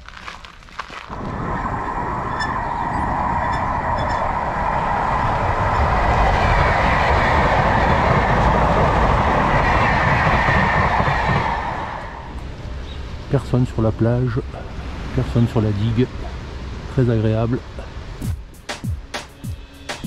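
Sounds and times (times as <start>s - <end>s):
bicycle tyre rumble: 0.0s - 12.8s
wind rushing over microphone: 1.1s - 13.3s.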